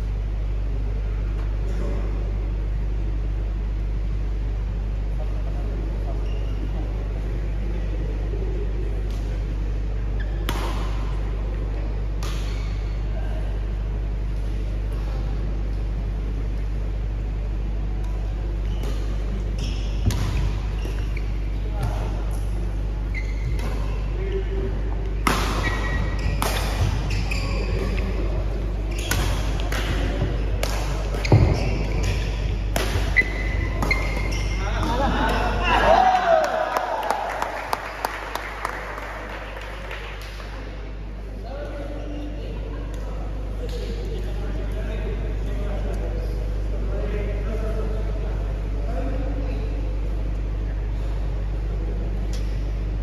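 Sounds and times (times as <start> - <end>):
low hum of sports hall: 0.0 - 53.0
shoe squeak on court: 6.2 - 6.6, 18.6 - 22.1, 23.1 - 24.2, 25.6 - 28.2, 28.9 - 34.9
racket hitting shuttlecock: 10.4 - 11.1, 25.2 - 27.2, 29.0 - 35.4.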